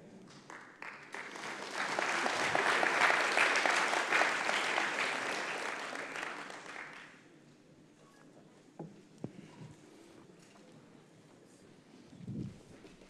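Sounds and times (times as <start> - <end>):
congregation applauding: 0.3 - 7.2.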